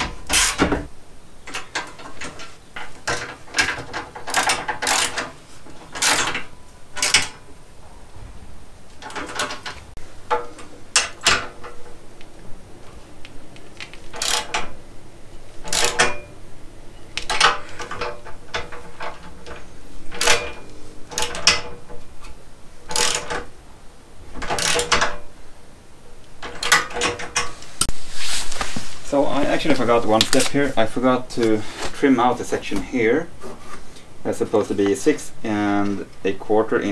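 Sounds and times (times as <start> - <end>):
ratchet wrench clicking: 3.7 - 5.3, 13.8 - 14.7, 15.7 - 16.2, 22.9 - 23.4, 24.4 - 25.1.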